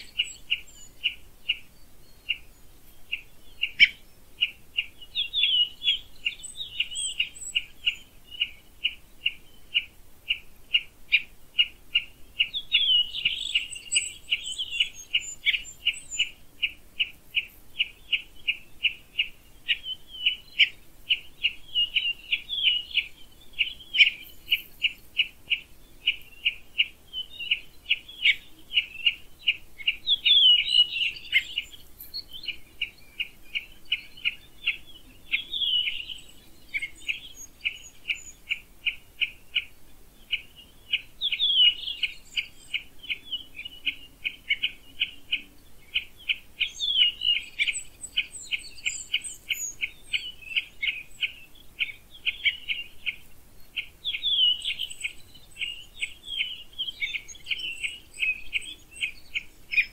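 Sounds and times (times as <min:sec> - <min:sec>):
faint high bird calls: 0:00.0 - 0:59.9
sweeping bird song: 0:00.0 - 0:59.9.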